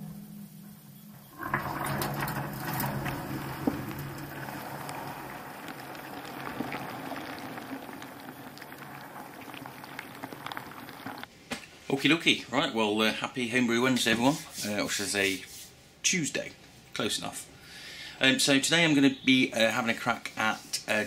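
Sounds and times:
water sloshing and bubbling: 0:00.0 - 0:11.3.

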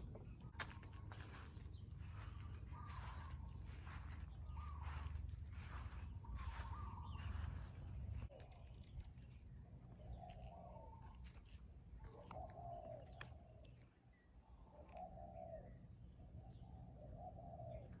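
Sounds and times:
low bird call: 0:00.0 - 0:08.7
steady low rumble: 0:00.0 - 0:12.0.

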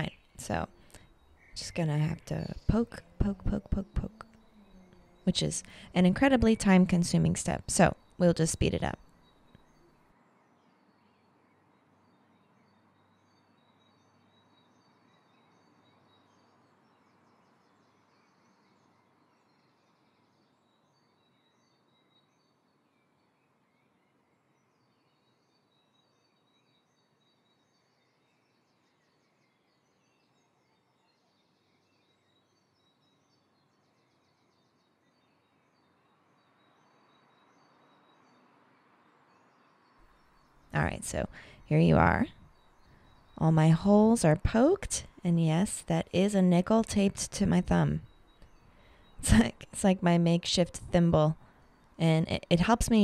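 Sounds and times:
distant bird chirps: 0:00.0 - 0:10.0, 0:32.1 - 0:53.0
faint high chirps: 0:00.0 - 0:10.0
faint background hiss: 0:00.0 - 0:53.0.

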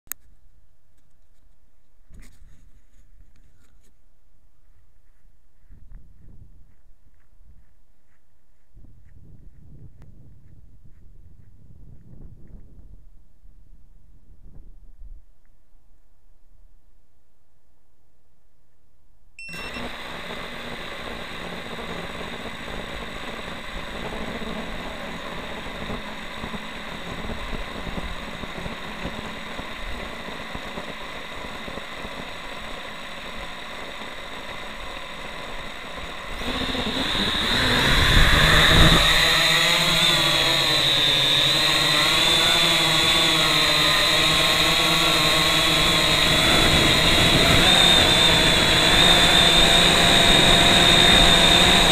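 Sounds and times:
drone motors whining: 0:19.4 - 0:51.9.

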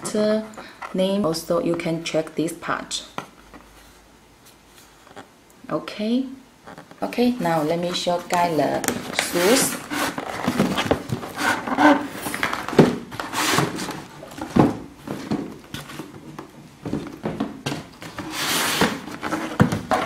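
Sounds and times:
cardboard and paper rustling: 0:06.8 - 0:20.0.

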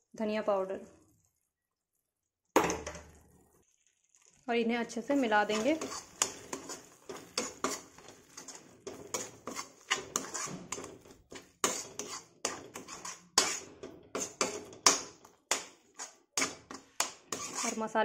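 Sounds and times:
metal spoon scraping metal pan: 0:05.0 - 0:18.0.

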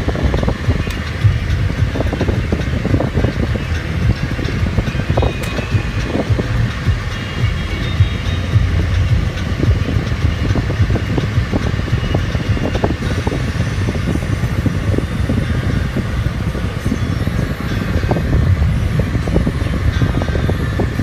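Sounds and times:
car cabin road and engine noise: 0:00.0 - 0:21.0.

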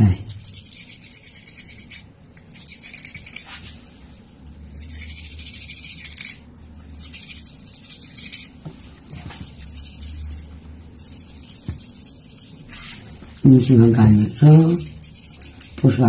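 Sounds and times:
toothbrush scrubbing teeth: 0:00.0 - 0:03.9, 0:04.5 - 0:16.0.

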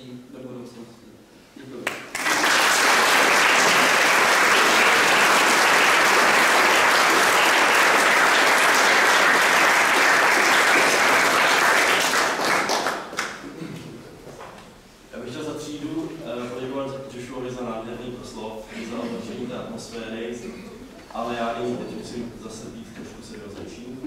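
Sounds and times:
audience applauding: 0:01.9 - 0:13.4.

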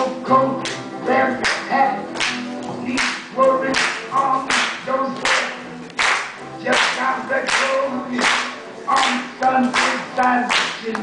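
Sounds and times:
person singing: 0:00.0 - 0:02.2, 0:02.8 - 0:05.7, 0:06.6 - 0:11.0
rhythmic handclapping: 0:00.3 - 0:11.0.

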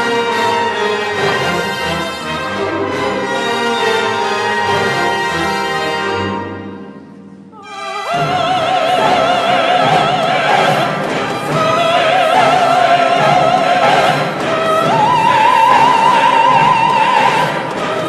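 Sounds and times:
orchestra playing: 0:00.0 - 0:18.0
operatic soprano singing: 0:07.5 - 0:18.0.

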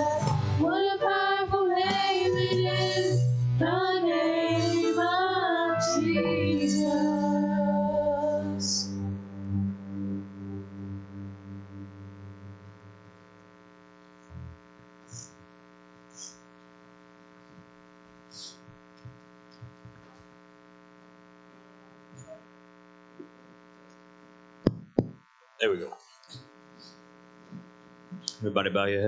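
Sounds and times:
worship music: 0:00.0 - 0:12.7
electrical hum from sound system: 0:00.0 - 0:29.0
faint knocks and thumps: 0:18.7 - 0:20.2.

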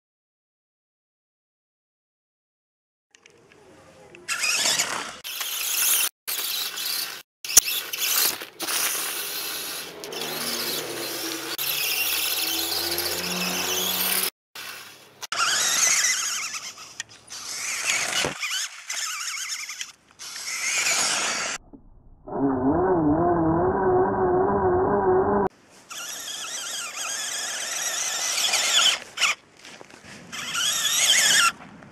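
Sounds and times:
tyres on gravel: 0:04.2 - 0:21.6, 0:25.5 - 0:31.9
small electric motor whining: 0:04.3 - 0:21.6, 0:22.3 - 0:29.4, 0:30.2 - 0:31.6.

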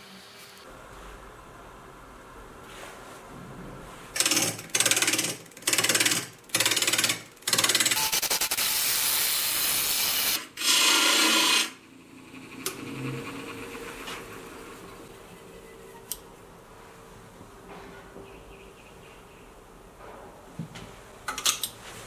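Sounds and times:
turning tool cutting wood: 0:08.8 - 0:11.8
lathe motor humming: 0:10.6 - 0:15.8.

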